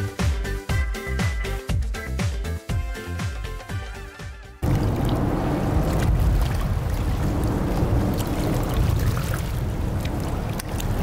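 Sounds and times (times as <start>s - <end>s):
boat engine rumbling: 4.6s - 11.0s.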